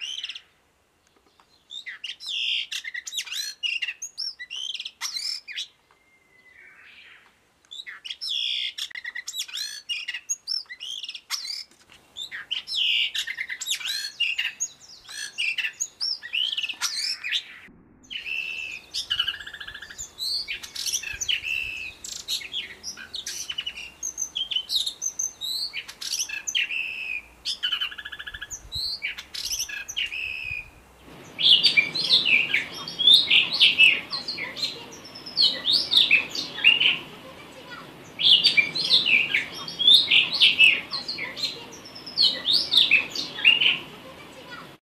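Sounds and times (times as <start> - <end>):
bird singing warbled whistles: 12.2 - 30.7.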